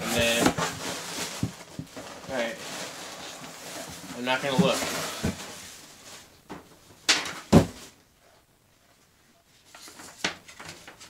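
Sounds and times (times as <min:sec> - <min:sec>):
cardboard rustling: 0:00.0 - 0:06.3
knocks on cardboard box: 0:07.5 - 0:07.8.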